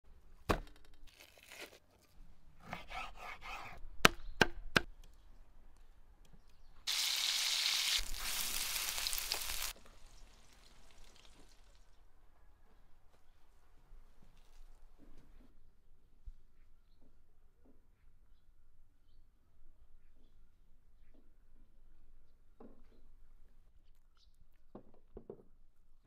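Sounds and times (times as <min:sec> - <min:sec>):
loud steady hiss: 0:06.9 - 0:09.7.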